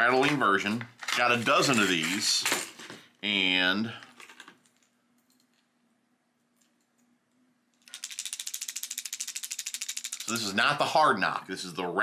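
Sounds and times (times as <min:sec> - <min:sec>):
fishing lure rattling: 0:07.8 - 0:10.5.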